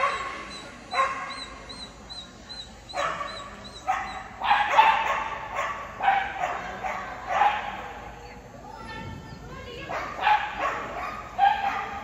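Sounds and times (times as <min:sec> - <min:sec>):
dog barking: 0:00.0 - 0:01.6, 0:02.9 - 0:08.0, 0:09.8 - 0:12.0.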